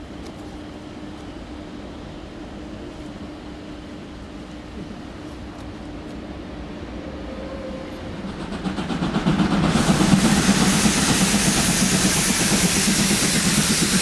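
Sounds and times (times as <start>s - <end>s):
steam locomotive rumble: 5.9s - 14.0s
steam hissing from drain cocks: 8.5s - 14.0s.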